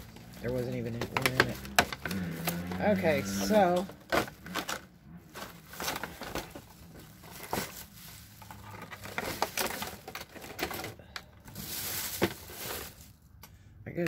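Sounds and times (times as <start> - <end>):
plastic bag crinkling: 0.0 - 13.3
hard plastic cases knocking: 1.0 - 2.1.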